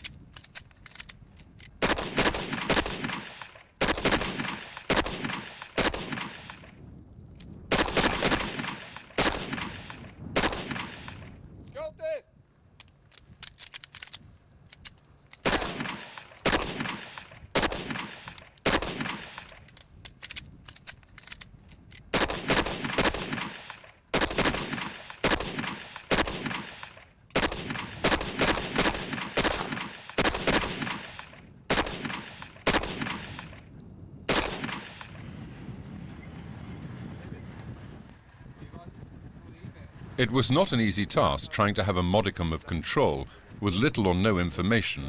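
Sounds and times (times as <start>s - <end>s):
pistol shots with echo: 1.8s - 6.7s, 7.7s - 11.3s, 15.4s - 19.5s, 22.1s - 33.6s, 34.3s - 35.2s.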